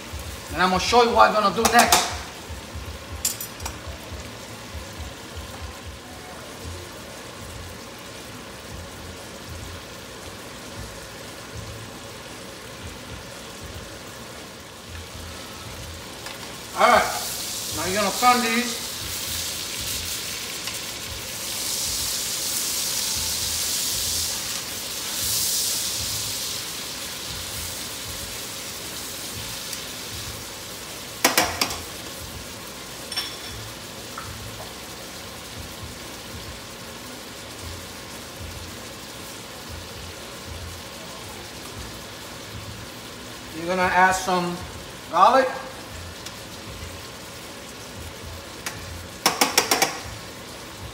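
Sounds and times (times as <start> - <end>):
steaks sizzling in a pan: 0.0 - 50.9
tongs clacking against pan: 1.6 - 2.2, 48.6 - 50.0.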